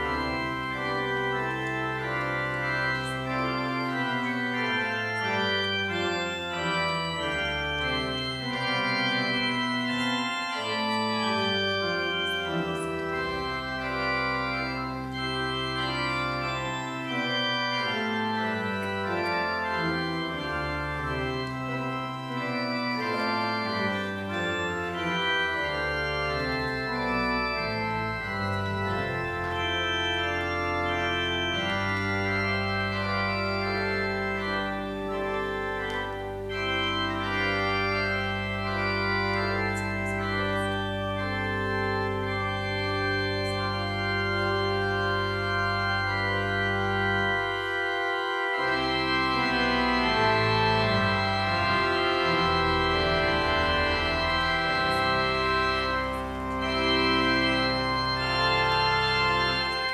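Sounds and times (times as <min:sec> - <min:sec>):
organ playing held chords: 0:00.0 - 0:59.9.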